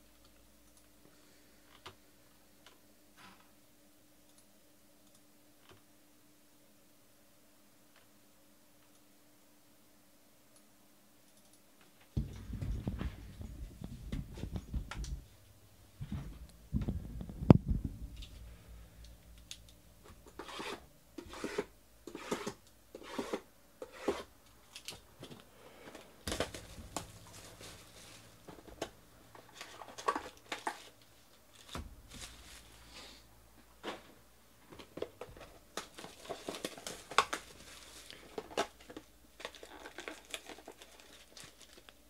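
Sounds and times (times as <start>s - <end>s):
loud knock: 12.2s - 15.3s
cardboard rustling and scraping: 12.2s - 15.4s, 26.3s - 33.0s.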